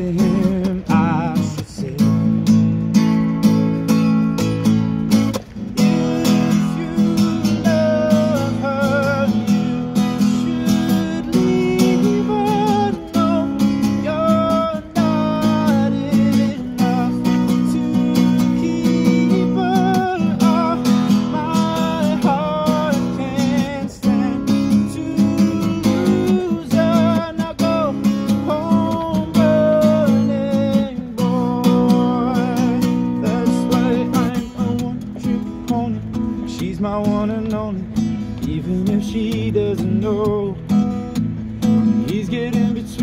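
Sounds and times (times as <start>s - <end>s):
man singing: 0.0s - 2.8s, 5.8s - 40.9s, 41.8s - 43.0s
acoustic guitar strumming: 0.0s - 43.0s.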